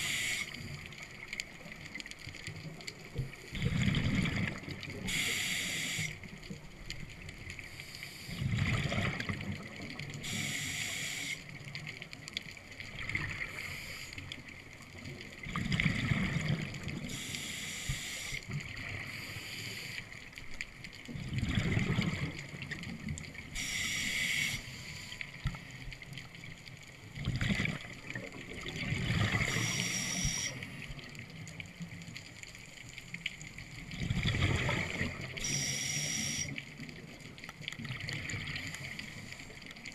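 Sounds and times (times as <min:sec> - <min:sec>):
hissing regulator inhale: 0:00.0 - 0:00.7, 0:05.1 - 0:06.2, 0:10.2 - 0:11.4, 0:17.1 - 0:18.4, 0:19.0 - 0:20.1, 0:23.6 - 0:25.2, 0:29.4 - 0:30.8, 0:35.4 - 0:36.6
gurgling exhaled bubbles: 0:03.3 - 0:05.2, 0:08.3 - 0:10.3, 0:15.0 - 0:17.2, 0:21.1 - 0:23.6, 0:27.1 - 0:31.2, 0:33.9 - 0:35.5.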